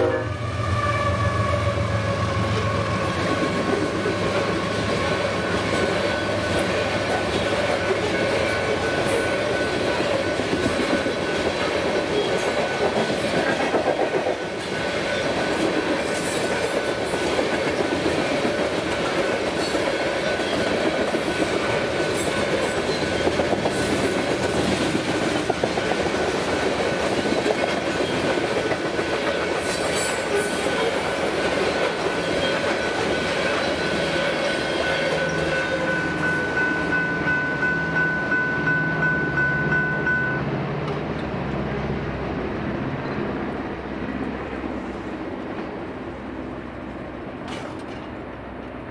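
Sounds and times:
freight train rumbling past: 0:00.0 - 0:48.9
steel wheels clacking on rails: 0:02.5 - 0:41.3
high-pitched ringing tone: 0:32.3 - 0:40.5.

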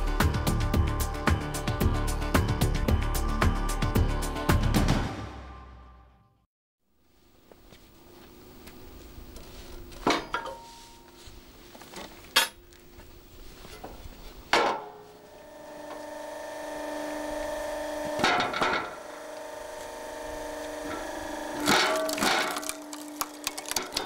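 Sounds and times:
motor and hydraulic pump humming: 0:15.0 - 0:24.0.

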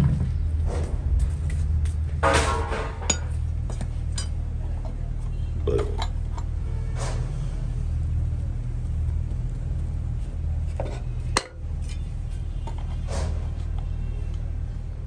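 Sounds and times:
metal tools clinking and knocking: 0:02.2 - 0:03.4, 0:04.1 - 0:04.4, 0:05.8 - 0:06.5, 0:10.8 - 0:12.9.

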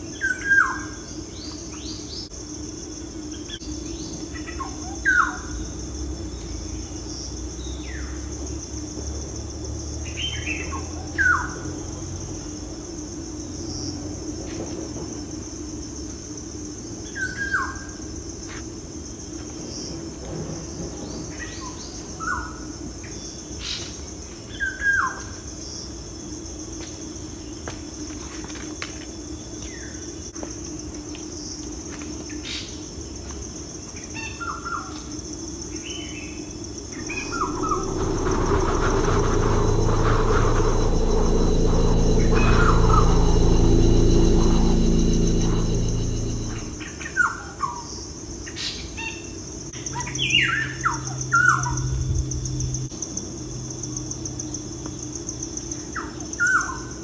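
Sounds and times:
high-pitched insect chorus: 0:36.8 - 0:47.1.

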